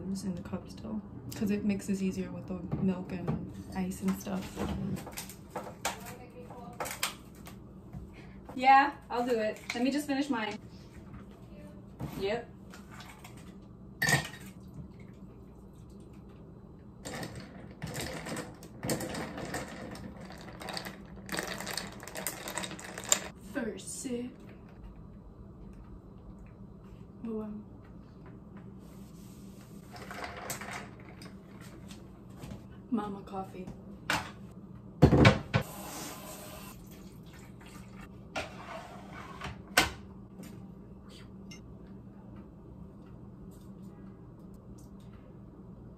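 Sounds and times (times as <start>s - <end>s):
low steady hum: 0.0s - 45.9s
water running: 35.6s - 38.1s.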